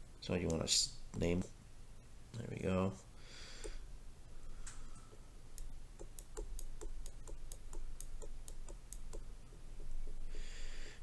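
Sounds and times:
stylus tapping on glass screen: 5.6 - 9.3.

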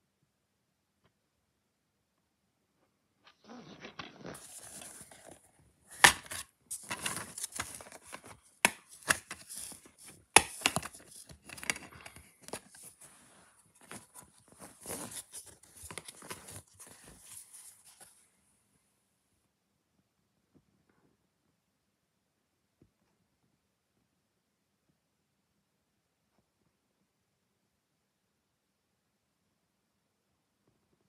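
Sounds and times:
paper rustling: 3.8 - 18.2.

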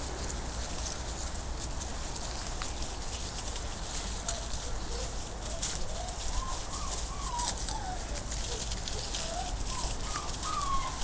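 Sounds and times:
dry leaves crackling underfoot: 0.0 - 11.0
puppies whining: 2.2 - 11.0.

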